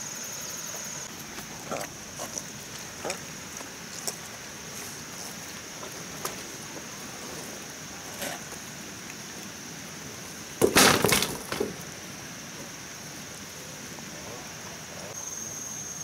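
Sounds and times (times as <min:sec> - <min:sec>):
high insect drone: 0:00.0 - 0:16.0
dry bamboo clattering: 0:10.6 - 0:12.0.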